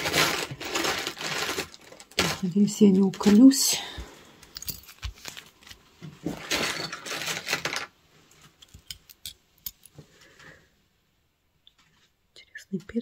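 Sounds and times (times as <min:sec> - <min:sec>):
jewelry rustling: 0:00.0 - 0:03.8, 0:04.4 - 0:10.0
small metal clinks: 0:04.5 - 0:05.0.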